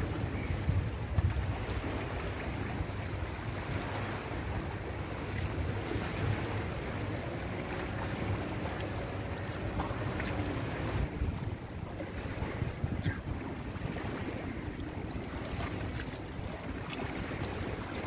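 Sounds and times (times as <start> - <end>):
small waves lapping: 0.0 - 18.0
wind buffeting microphone: 0.0 - 18.0.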